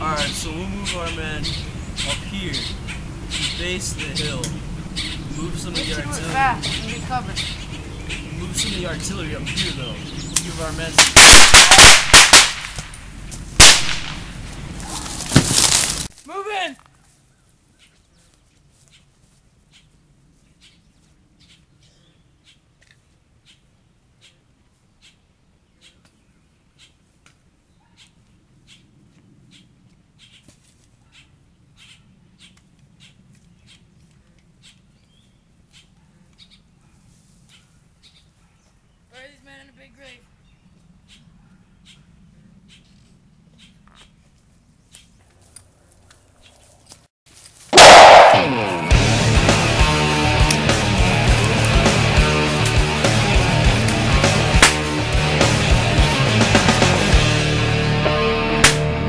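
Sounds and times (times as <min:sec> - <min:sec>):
faint bird chirping: 0:17.0 - 0:22.7, 0:23.4 - 0:46.9
loud rock music: 0:47.8 - 0:59.0.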